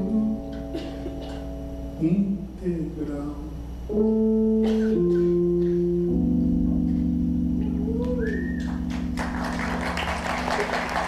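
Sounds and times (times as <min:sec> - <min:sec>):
audience applause: 0:08.6 - 0:11.0
live band holding chord: 0:08.7 - 0:11.0.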